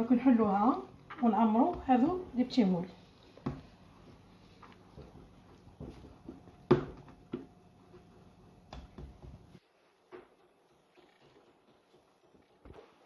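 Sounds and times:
dough thumping on wooden worktop: 5.8 - 7.5.

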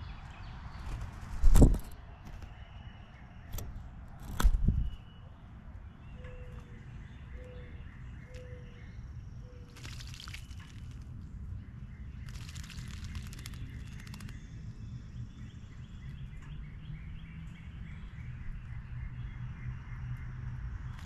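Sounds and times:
bird splashing in water: 9.7 - 11.0, 12.2 - 14.3.

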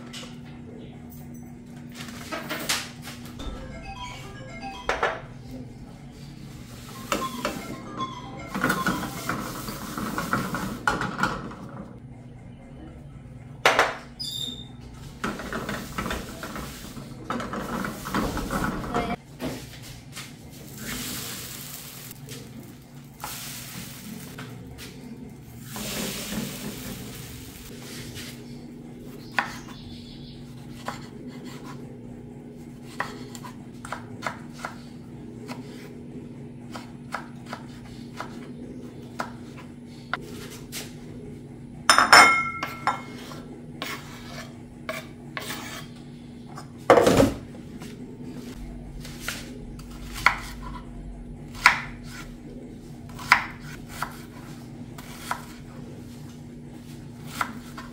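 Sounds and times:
dough hissing in hot pan: 20.6 - 22.2.

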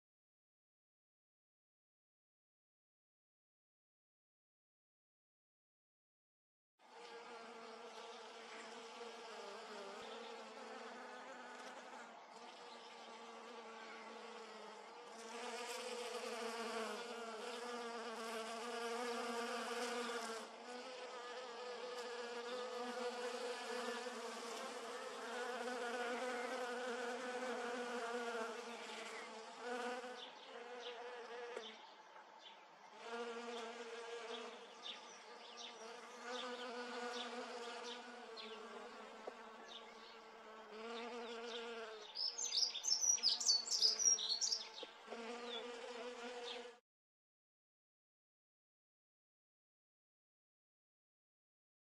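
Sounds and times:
bees buzzing: 7.0 - 31.7, 33.0 - 46.8.

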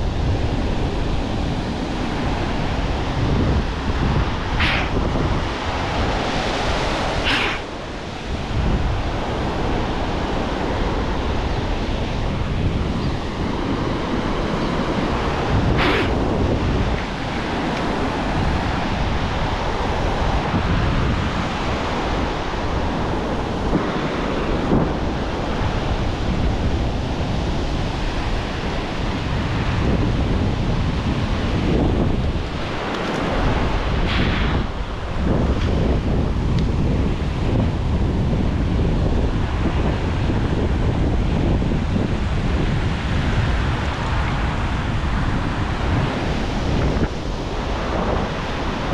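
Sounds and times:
ocean surf breaking on beach: 0.0 - 48.9
wind buffeting microphone: 0.0 - 48.9
short hissing bursts: 4.6 - 5.0, 7.2 - 7.7.

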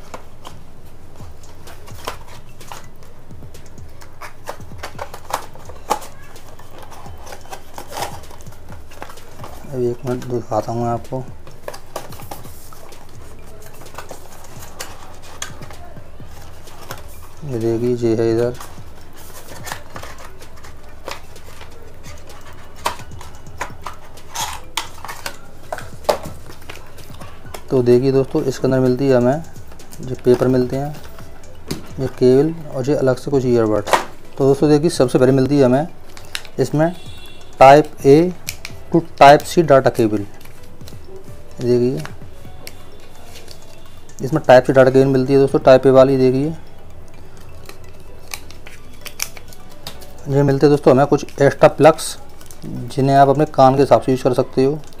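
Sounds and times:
paperboard rustling: 0.0 - 46.6.

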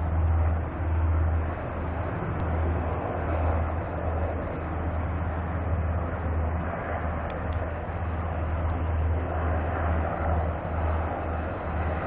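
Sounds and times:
helicopter rotor and engine drone: 0.0 - 12.0.

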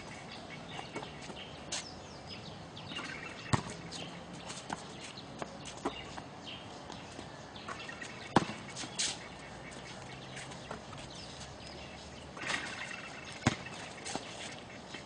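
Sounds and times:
basketball thudding on court: 3.5 - 3.8, 8.3 - 8.6, 13.4 - 13.7.

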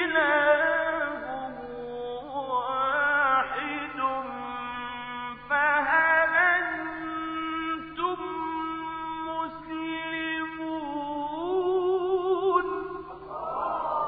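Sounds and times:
man chanting recitation: 0.0 - 13.3.

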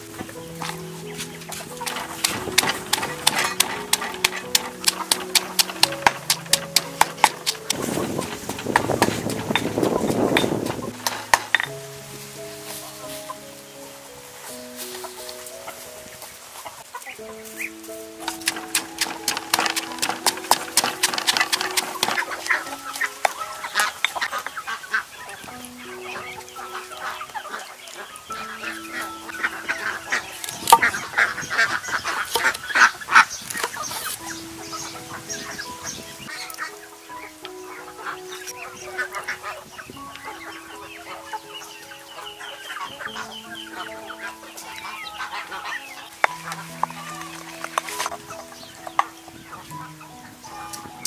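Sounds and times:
background music of held notes: 0.0 - 51.0
chickens clucking: 0.0 - 51.0
pestle pounding in stone mortar: 18.4 - 22.5.

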